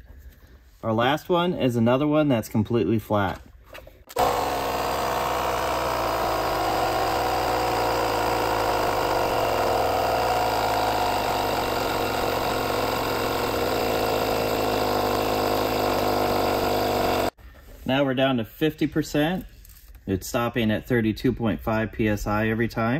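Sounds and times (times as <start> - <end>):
portable air compressor running: 4.1 - 17.4.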